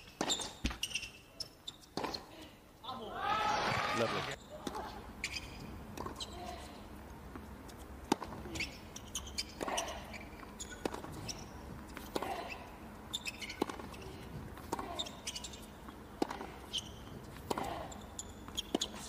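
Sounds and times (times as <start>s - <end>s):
tennis ball bouncing: 0.0s - 0.8s, 1.8s - 2.2s, 4.6s - 19.0s
sneaker squeaks on court: 0.0s - 2.3s, 5.2s - 6.4s, 8.2s - 14.1s, 14.8s - 19.0s.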